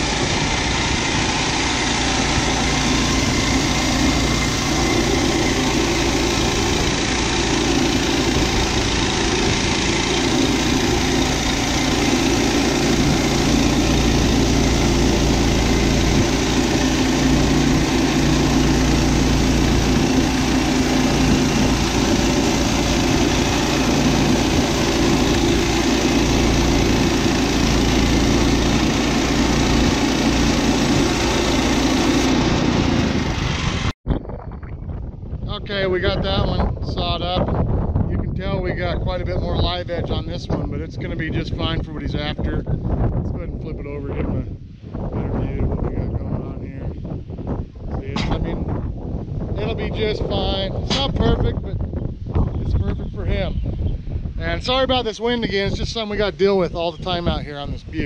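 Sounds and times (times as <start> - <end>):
bandsaw sawmill cutting log: 0.0 - 34.0
wind buffeting microphone: 0.0 - 58.0.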